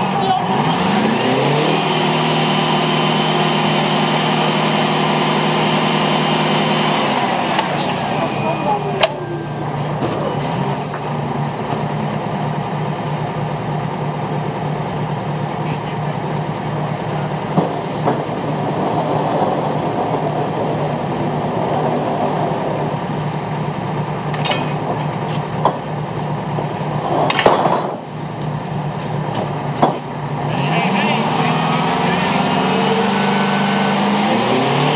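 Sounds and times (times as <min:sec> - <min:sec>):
engine running steadily: 0:00.0 - 0:34.9
metal pipe clanks: 0:24.3 - 0:25.4.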